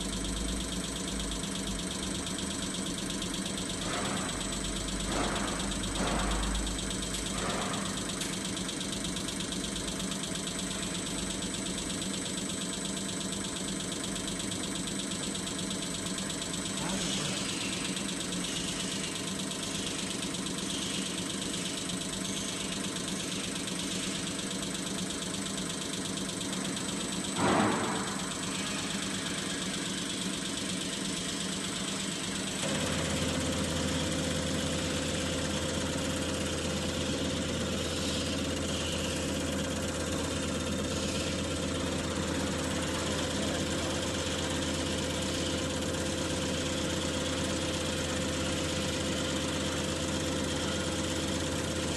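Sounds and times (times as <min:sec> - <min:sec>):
steady whining tone: 0:00.0 - 0:47.4
test bench humming: 0:00.0 - 0:51.9.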